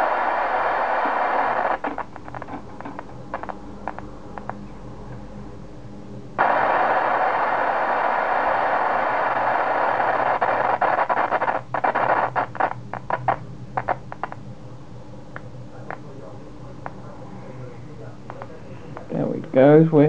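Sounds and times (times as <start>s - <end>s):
loud even hiss: 6.4s - 12.6s.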